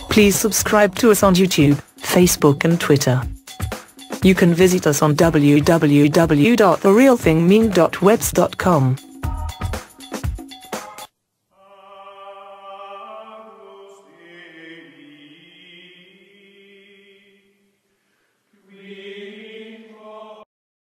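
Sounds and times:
choir-like held chords: 0:11.6 - 0:17.5, 0:18.6 - 0:20.5.

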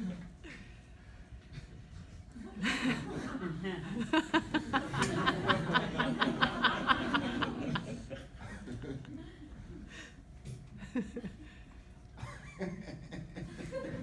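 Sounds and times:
audience laughing: 0:02.4 - 0:10.0, 0:12.2 - 0:14.0.

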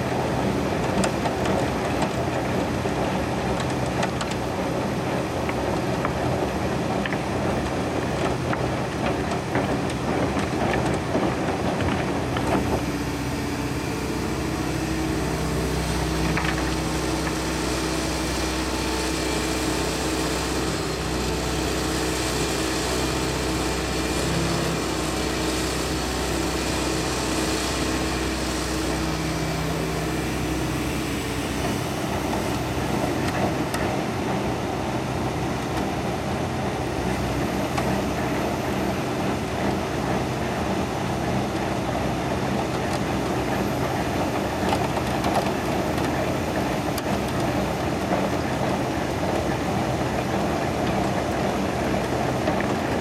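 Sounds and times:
excavator diesel engine running: 0:00.0 - 0:53.0
screening bucket churning soil: 0:00.1 - 0:38.8.

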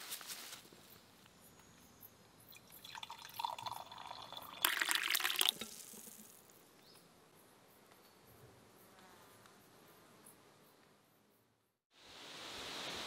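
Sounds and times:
tea pouring into metal mug: 0:02.5 - 0:06.4.

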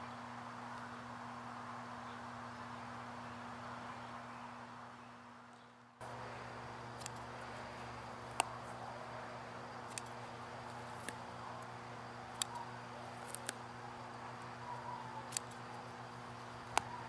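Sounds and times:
faint steady hum: 0:00.0 - 0:17.0
scissors snipping: 0:07.0 - 0:07.3, 0:09.8 - 0:11.2, 0:12.3 - 0:13.6, 0:15.2 - 0:15.7.

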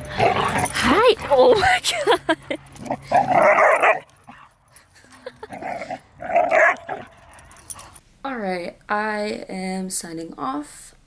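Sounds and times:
dogs barking: 0:03.0 - 0:04.5, 0:06.2 - 0:07.8.

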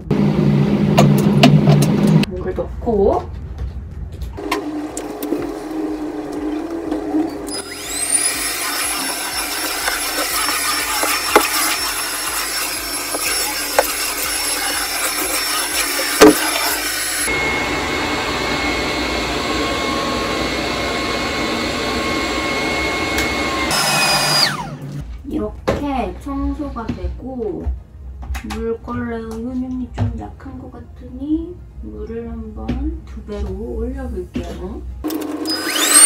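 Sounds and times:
cordless vacuum whining: 0:04.4 - 0:25.0, 0:35.0 - 0:36.0
vacuum head knocking: 0:09.4 - 0:11.9, 0:16.2 - 0:16.6.

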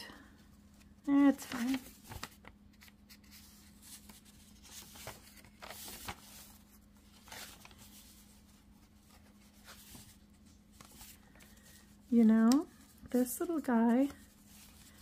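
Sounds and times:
faint steady hum: 0:00.0 - 0:15.0
paper pages turning: 0:00.7 - 0:15.0.

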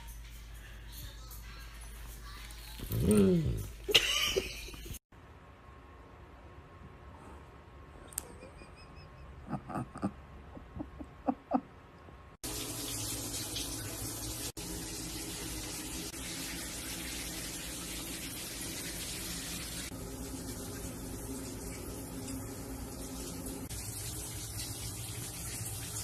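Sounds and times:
shower water running: 0:12.4 - 0:26.0.

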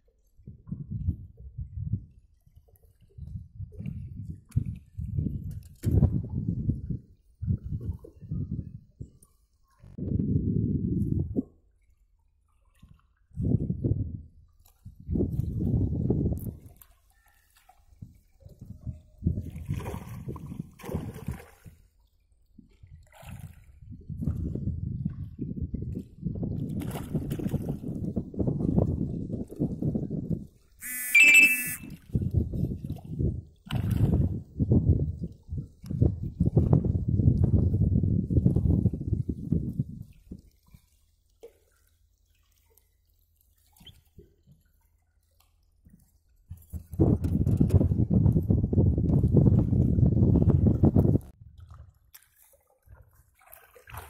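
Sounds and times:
fish splashing in water: 0:19.5 - 0:21.9, 0:23.0 - 0:23.8, 0:51.6 - 0:54.0.

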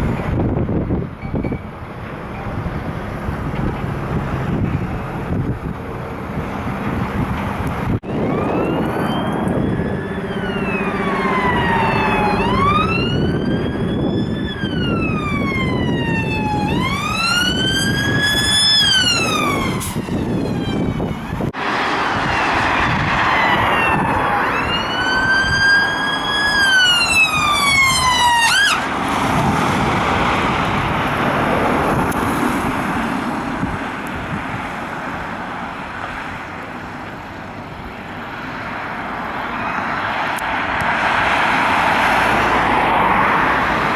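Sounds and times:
wind on microphone: 0:00.0 - 0:36.5
passing traffic: 0:00.0 - 0:43.9
ambulance siren wailing and yelping: 0:08.0 - 0:21.6, 0:22.2 - 0:29.0.

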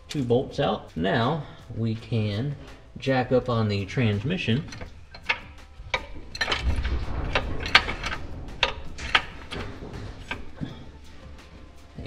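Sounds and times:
low rumble: 0:01.4 - 0:12.0
metallic clinks and knocks: 0:03.8 - 0:12.0.

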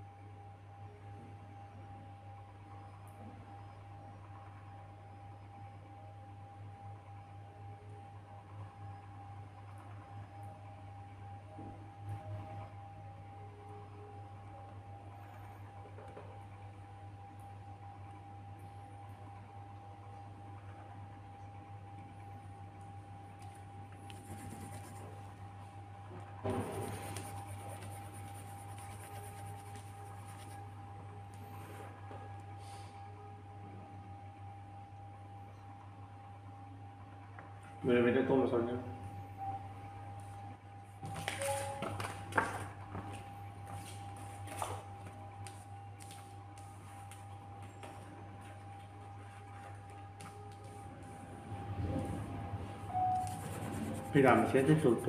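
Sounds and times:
steady low hum: 0:00.0 - 0:55.0
pencil scratching on paper: 0:24.0 - 0:25.4, 0:26.5 - 0:30.8, 0:53.1 - 0:55.0
faint steady tone: 0:39.0 - 0:40.4, 0:52.8 - 0:53.8.

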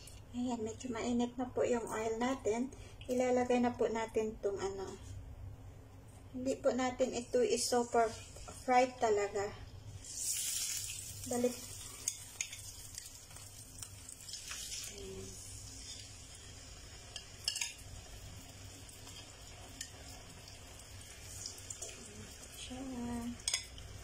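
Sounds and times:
fish sizzling in a frying pan: 0:10.0 - 0:24.0.

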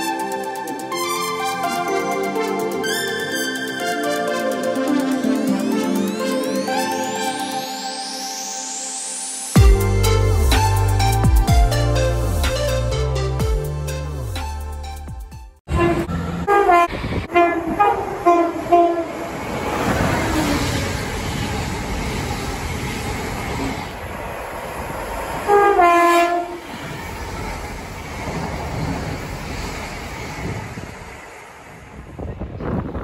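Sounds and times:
train horn toots: 0:15.7 - 0:19.4, 0:25.5 - 0:27.0
train rumbling: 0:15.7 - 0:33.0.

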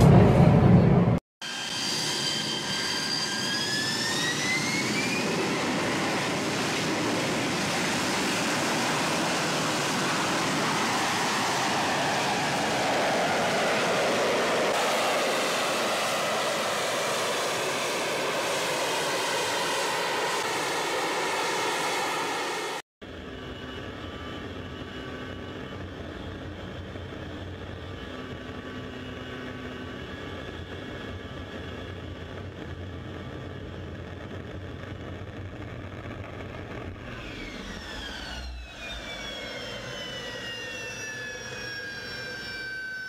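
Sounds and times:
steady jet noise: 0:00.0 - 0:22.8
jet engine whine spooling up: 0:00.0 - 0:43.0.

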